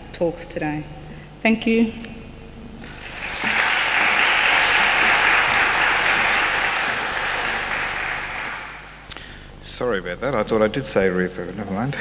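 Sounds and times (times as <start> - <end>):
audience applauding: 2.8 - 9.1.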